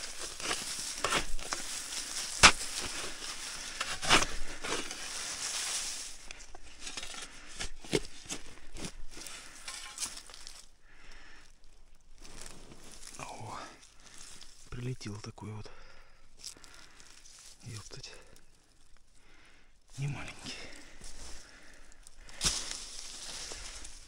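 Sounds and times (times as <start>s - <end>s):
crunching of leaves: 0.0s - 15.2s, 16.4s - 19.1s, 19.9s - 24.0s
spade chopping into soil: 0.1s - 3.1s, 3.8s - 4.9s.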